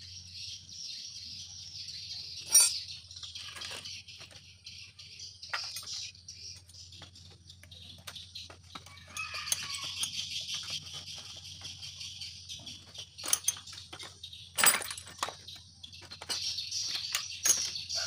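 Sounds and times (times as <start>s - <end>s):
small birds chirping: 0.0s - 18.0s
chickens clucking: 6.7s - 13.0s.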